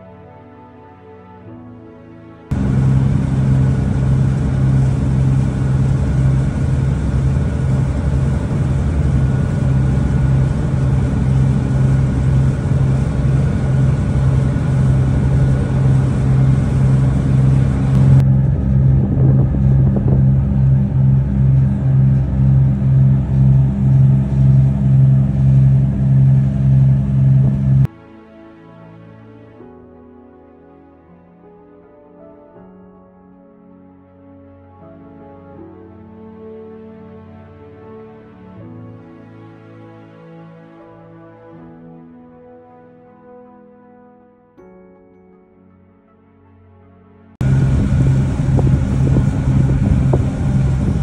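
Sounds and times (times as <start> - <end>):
ferry engine humming: 2.5 - 27.9, 47.4 - 51.0.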